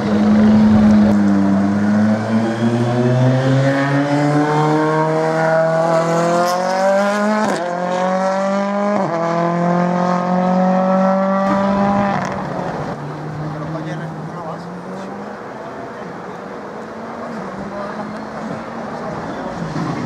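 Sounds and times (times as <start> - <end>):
rally car engine accelerating: 0.0 - 15.6.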